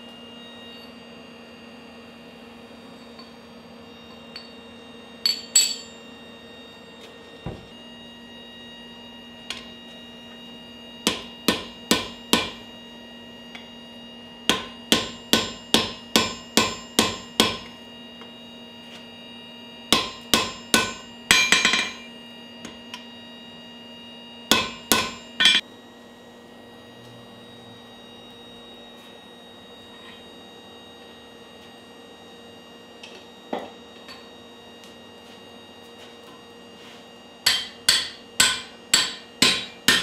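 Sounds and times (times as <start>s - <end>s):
hammer ringing on anvil: 4.3s - 4.6s, 5.2s - 6.1s, 11.0s - 12.6s, 14.5s - 17.7s, 19.9s - 22.1s, 24.5s - 25.6s, 37.4s - 40.0s.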